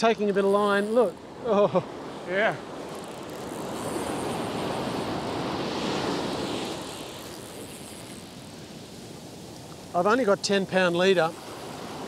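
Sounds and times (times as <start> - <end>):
surf breaking on sand: 3.5 - 12.0.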